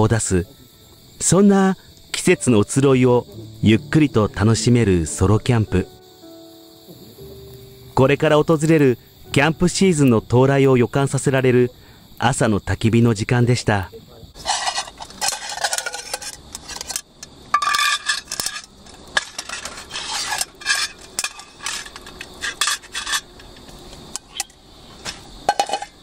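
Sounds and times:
metal pot scraping and clattering: 14.4 - 26.0.

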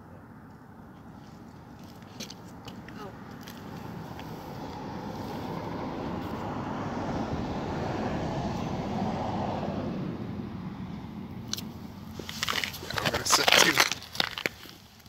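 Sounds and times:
vehicle passing: 0.0 - 14.8
rustling and crinkling: 1.0 - 5.4, 11.6 - 15.0.

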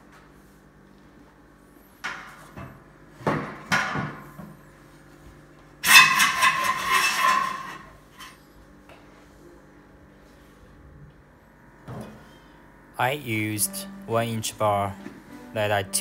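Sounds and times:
metal bar scraping and rattling: 5.8 - 8.4.

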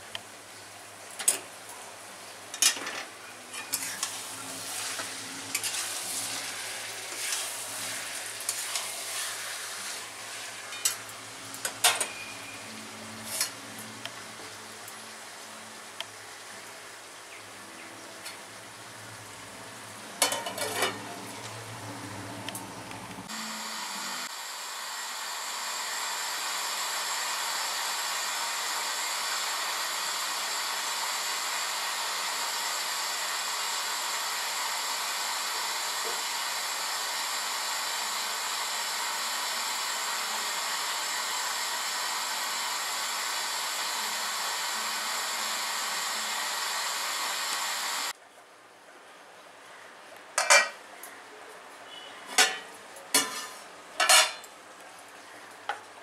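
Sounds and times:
curry sizzling in a pan: 0.4 - 24.3
gas burner hissing: 3.5 - 15.1, 20.2 - 48.2.

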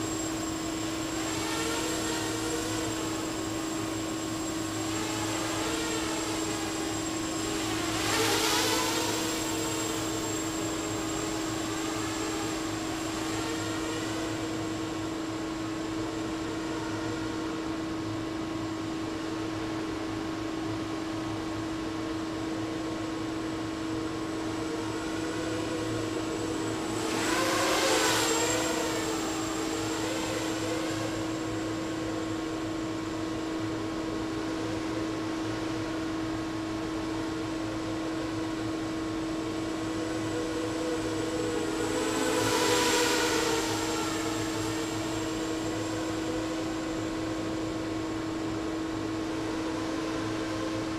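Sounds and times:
quadcopter propeller whine: 0.0 - 50.9.

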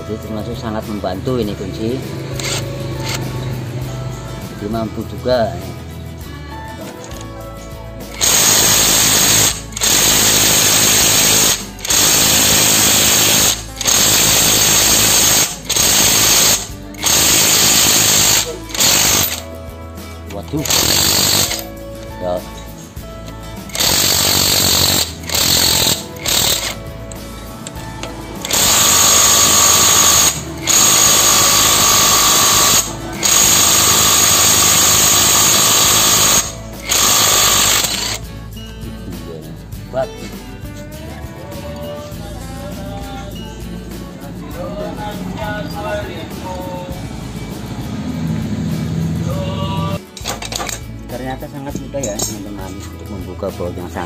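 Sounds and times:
impact wrench hammering: 2.3 - 3.2, 8.1 - 19.5, 20.6 - 21.7, 23.7 - 26.9, 27.6 - 38.2.

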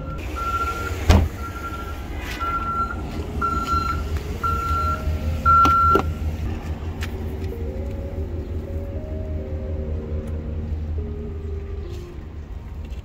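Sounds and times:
car warning chime beeping: 0.0 - 6.4.

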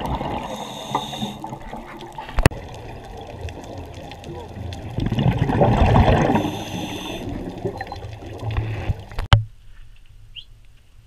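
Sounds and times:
water rushing and bubbling underwater: 0.0 - 9.4.

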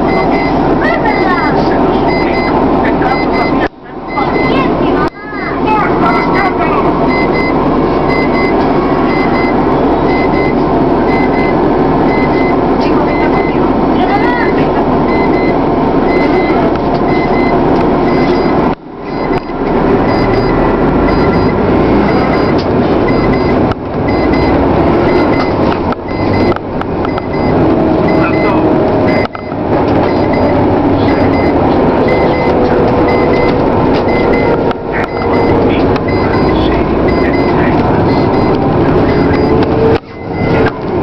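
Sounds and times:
vehicle road and engine noise: 0.0 - 41.0.

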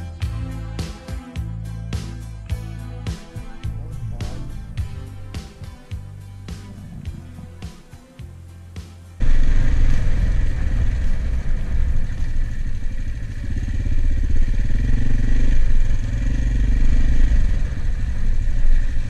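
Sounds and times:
motorcycle engine running: 1.9 - 8.5, 9.2 - 19.0.

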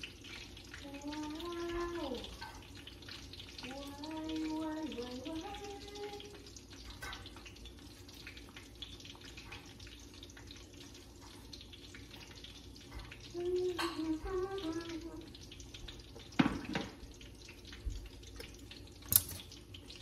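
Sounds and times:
woman humming: 13.4 - 15.2.

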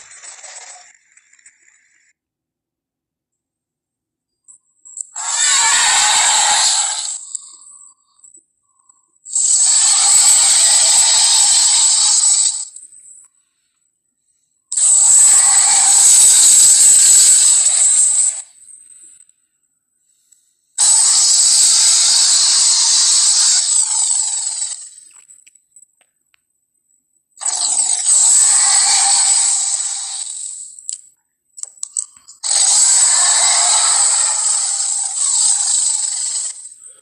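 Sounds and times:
cartoon dinosaur roar: 5.2 - 7.5, 9.3 - 12.7, 14.7 - 18.4, 20.8 - 24.9, 27.4 - 30.6, 32.4 - 36.8.

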